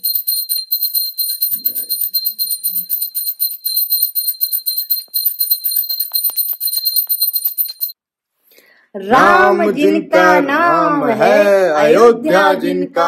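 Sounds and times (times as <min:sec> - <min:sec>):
hand bell rung rapidly: 0:00.0 - 0:08.0.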